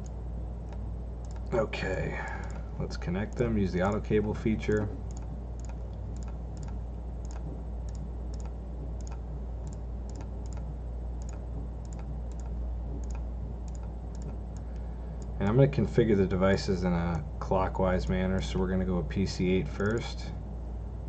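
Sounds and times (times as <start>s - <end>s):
computer mouse clicking: 0.0s - 1.5s, 2.3s - 2.6s, 3.3s - 4.0s, 4.7s - 15.4s
low hum: 0.0s - 21.0s.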